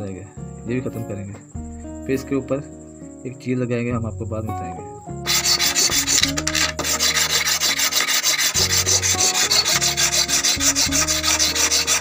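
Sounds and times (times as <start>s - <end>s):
hand file scraping steel: 5.3s - 12.0s.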